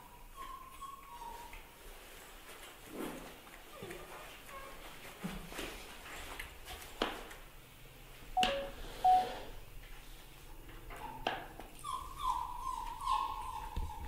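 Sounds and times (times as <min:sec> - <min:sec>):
young animal whimpering cries: 0:11.8 - 0:14.0.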